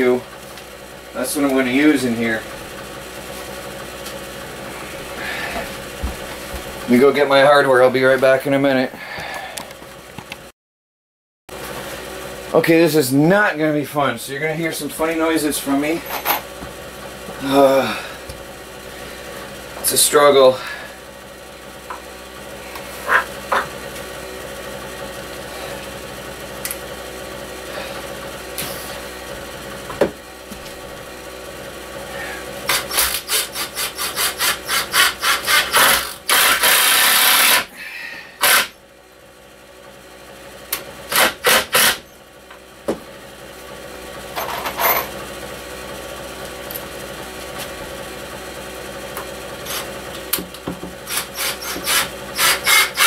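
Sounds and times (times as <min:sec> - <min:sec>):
rasping strokes on wood: 0:32.7 - 0:37.6.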